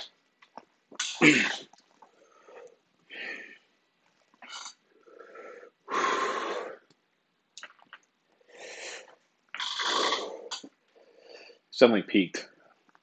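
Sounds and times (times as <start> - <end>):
man breathing hard: 5.0 - 6.9.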